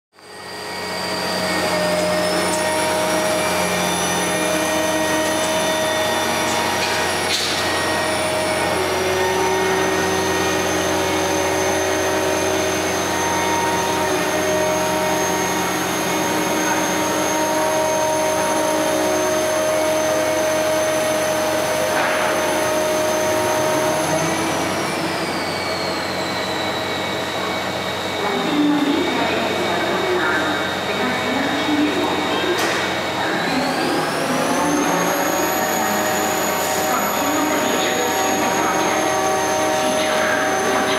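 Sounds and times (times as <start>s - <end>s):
high whine: 0.1s - 40.9s
crane machinery humming: 0.2s - 40.9s.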